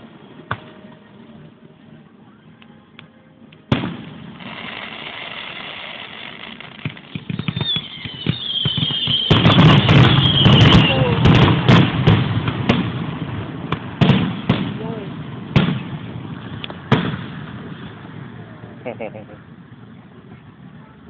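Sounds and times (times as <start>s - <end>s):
firework bangs: 3.7s - 18.6s
firework crackling: 3.7s - 21.0s
firework whistle falling in pitch: 4.4s - 11.2s.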